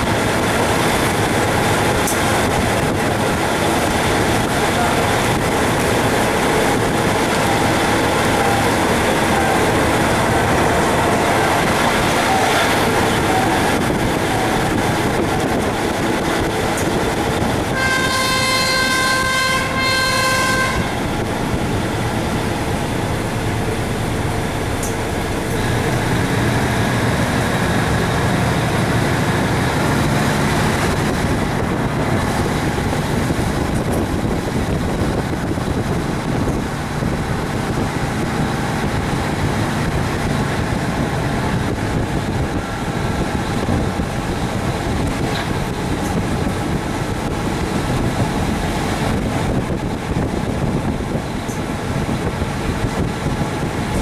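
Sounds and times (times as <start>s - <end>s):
train rumbling on track: 0.0s - 54.0s
train horn: 7.3s - 10.0s, 12.1s - 13.7s, 17.7s - 21.1s.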